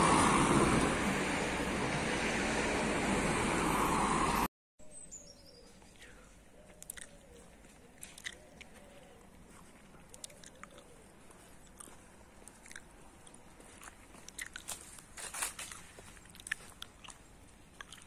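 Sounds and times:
footsteps crunching dry leaves: 0:13.6 - 0:16.8.

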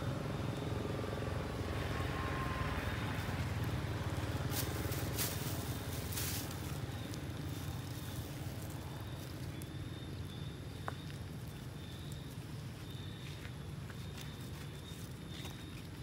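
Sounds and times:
low outdoor rumble: 0:00.0 - 0:16.0
clicks and scrapes of gravel: 0:03.6 - 0:09.7.

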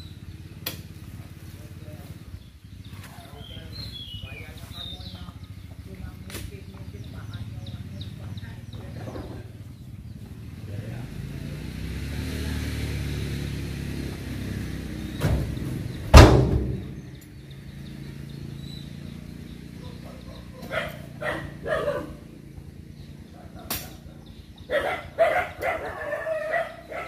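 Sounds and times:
vehicle engine running: 0:00.0 - 0:27.0
deep thud in steel truck bed: 0:15.1 - 0:17.2.

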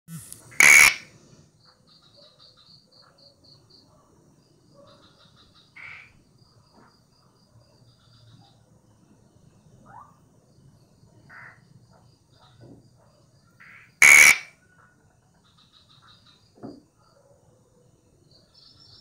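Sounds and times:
frog calling: 0:00.2 - 0:03.3, 0:04.8 - 0:06.2, 0:09.8 - 0:10.2, 0:11.3 - 0:12.6, 0:13.6 - 0:14.6.

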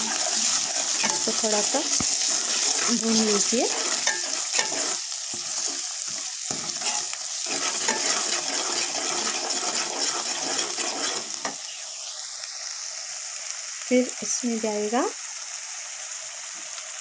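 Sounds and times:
metal ladle scraping pan: 0:00.0 - 0:11.6
masala sizzling in oil: 0:00.0 - 0:17.0.

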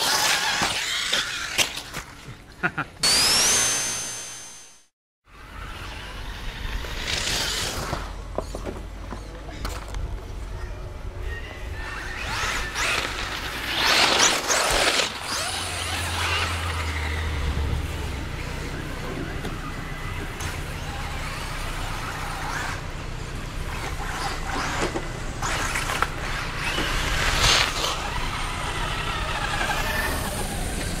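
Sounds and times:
electric motor whine: 0:03.0 - 0:04.8, 0:23.6 - 0:31.0.

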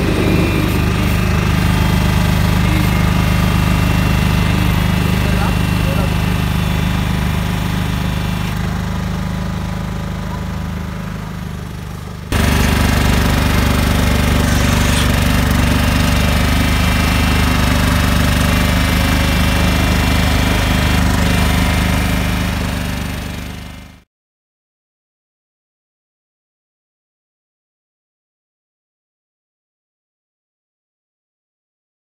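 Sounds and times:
vibrating screed rattle: 0:00.0 - 0:06.2
paver engine drone: 0:00.0 - 0:23.9.

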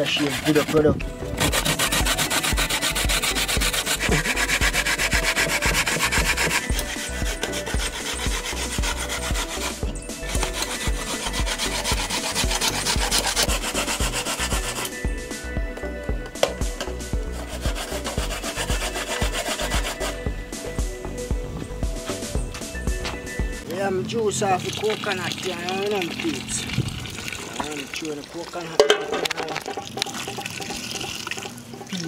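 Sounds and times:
coconut grated on metal grater: 0:00.0 - 0:15.0, 0:17.3 - 0:20.2.

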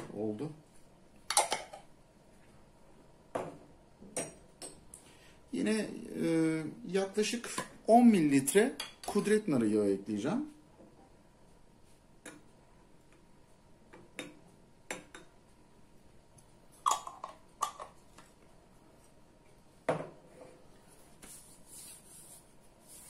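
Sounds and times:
glass jars knocking and clinking: 0:16.8 - 0:18.0.

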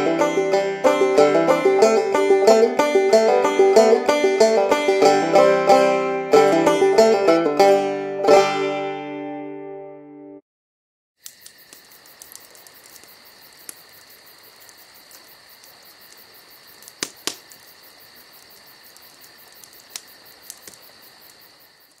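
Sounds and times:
sharp clicks: 0:11.2 - 0:17.8, 0:18.4 - 0:22.0
insect chorus trilling: 0:11.2 - 0:22.0.

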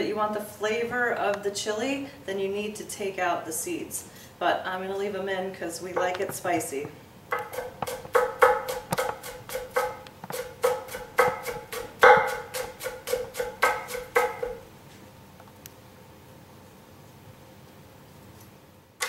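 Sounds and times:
knife chopping on cutting board: 0:07.3 - 0:14.6.

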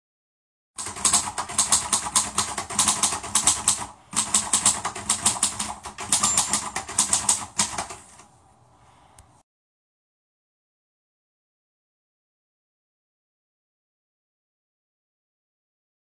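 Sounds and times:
rapid irregular clicking: 0:00.8 - 0:08.3.

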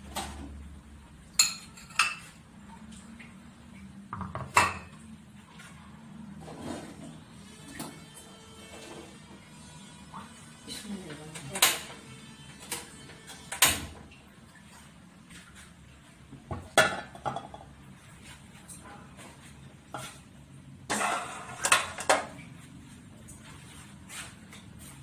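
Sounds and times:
metal cookware clanking: 0:01.4 - 0:02.4, 0:04.2 - 0:04.9, 0:20.9 - 0:22.4.

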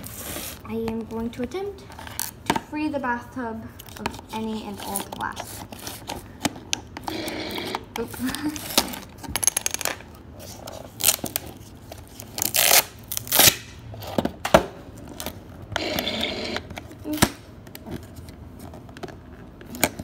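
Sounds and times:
plastic film peeling and crinkling: 0:10.4 - 0:13.7.

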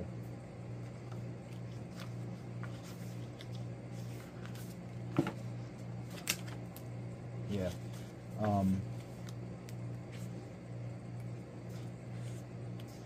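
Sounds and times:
steady low hum: 0:00.0 - 0:13.0
book pages rustling: 0:01.5 - 0:05.4.

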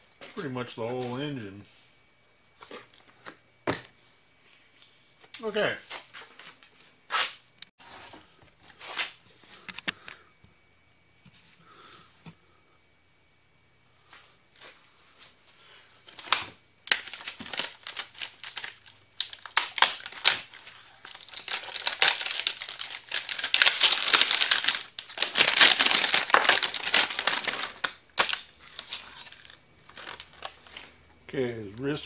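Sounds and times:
plastic packaging crinkling: 0:16.0 - 0:31.0.

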